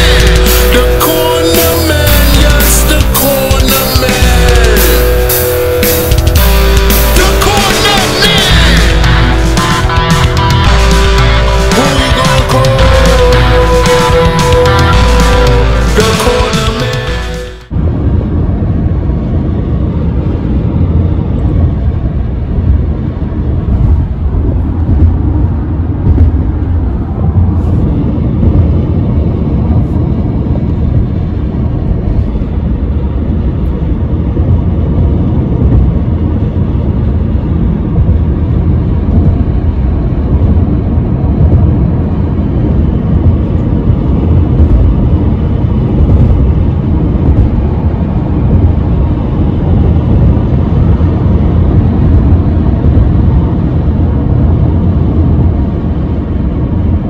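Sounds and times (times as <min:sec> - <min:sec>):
car road rumble from inside: 0:17.7 - 0:57.0.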